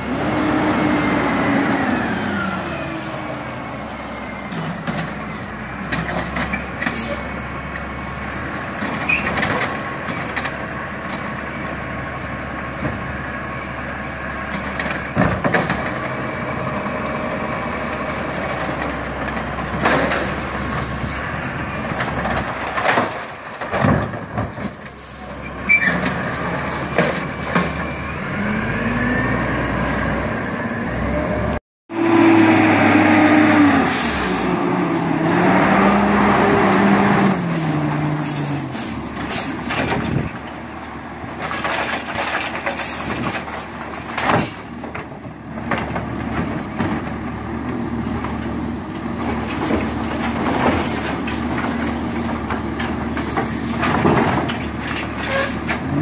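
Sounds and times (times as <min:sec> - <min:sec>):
truck engine revving: 0:00.0 - 0:04.9, 0:26.0 - 0:40.4
clanks and knocks from cart: 0:14.5 - 0:16.2, 0:18.6 - 0:20.5, 0:21.8 - 0:25.0, 0:25.9 - 0:27.8, 0:39.2 - 0:40.6, 0:41.3 - 0:48.5, 0:49.2 - 0:56.0.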